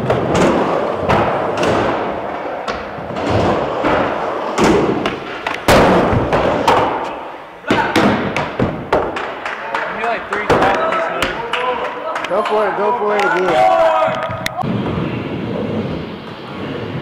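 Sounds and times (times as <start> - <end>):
skateboard thuds and clacks: 0.0 - 7.1, 7.7 - 9.6
skateboard wheels rolling on ramp: 0.0 - 7.2, 14.1 - 17.0.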